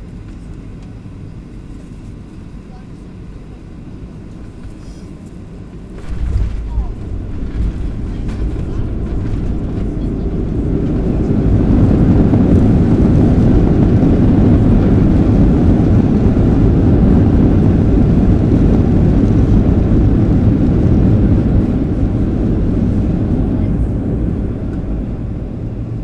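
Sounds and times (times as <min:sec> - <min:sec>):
airplane cabin roar: 0:00.0 - 0:26.0.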